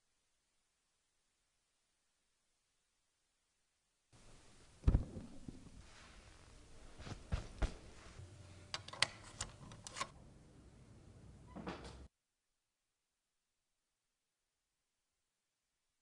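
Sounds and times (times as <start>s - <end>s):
dull thump: 4.8s - 5.9s.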